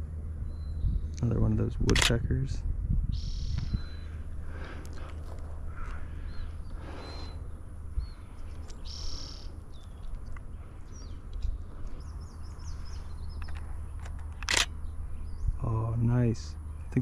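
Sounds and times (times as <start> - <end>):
steady low rumble: 0.0 - 17.0
birds chirping and whistling: 0.4 - 1.2, 3.1 - 17.0
sharp click: 1.2 - 2.2, 13.4 - 14.8.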